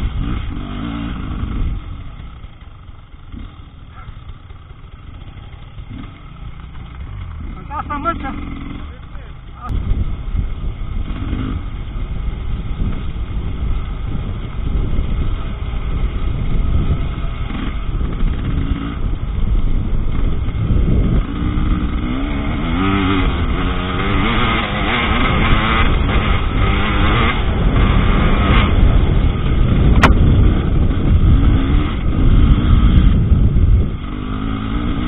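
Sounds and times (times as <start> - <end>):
wind rumble on microphone: 0.0 - 2.6, 9.6 - 35.0
motorcycle engine revving: 0.0 - 35.0.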